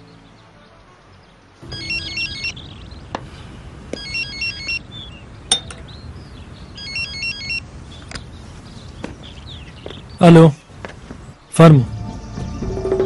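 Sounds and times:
phone ringtone beeps: 0:01.6 - 0:02.8, 0:04.0 - 0:04.9, 0:06.8 - 0:07.6.

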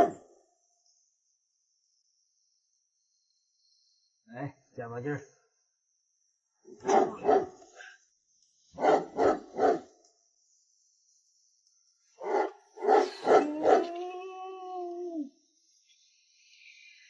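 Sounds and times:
dog barking: 0:00.0 - 0:00.2, 0:06.7 - 0:07.8, 0:08.8 - 0:09.9, 0:12.2 - 0:13.9
dog howling: 0:12.2 - 0:15.4.

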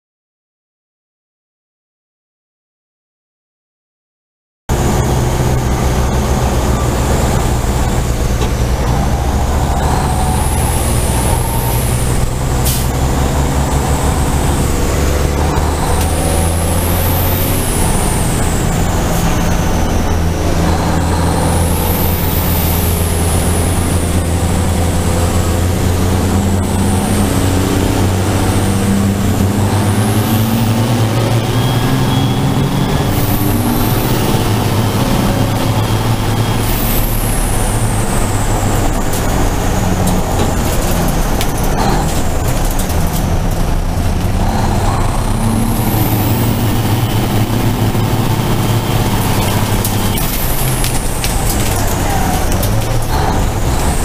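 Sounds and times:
diesel engine drone: 0:04.7 - 0:54.0
turbo whistle: 0:30.2 - 0:35.0.

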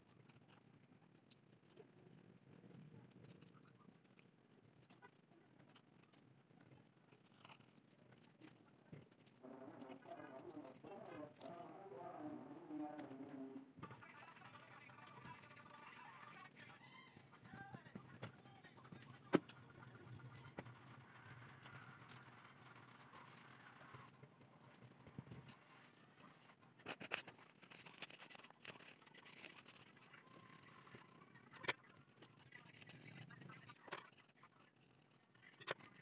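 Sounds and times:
paper rustling: 0:26.8 - 0:36.0.

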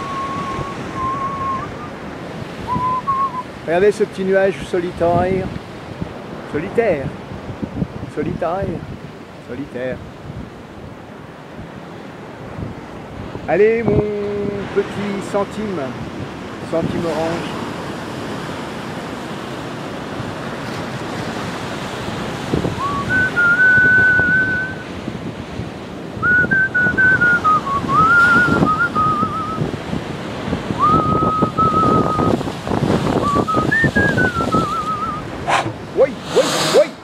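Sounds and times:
person whistling a tune: 0:00.0 - 0:01.9, 0:02.7 - 0:03.5, 0:22.8 - 0:24.8, 0:26.2 - 0:29.6, 0:30.8 - 0:32.4, 0:33.2 - 0:35.3
sea waves on rocks: 0:00.0 - 0:08.1, 0:08.8 - 0:37.0.

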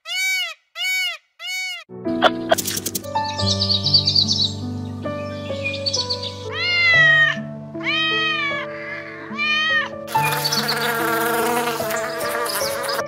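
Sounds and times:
background music: 0:01.9 - 0:13.0
cat meowing: 0:06.4 - 0:10.1
bees buzzing loudly: 0:10.1 - 0:13.0.

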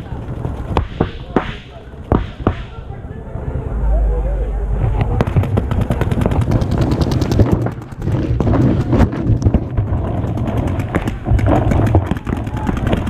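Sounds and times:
paintball markers firing rapidly: 0:05.2 - 0:13.0.

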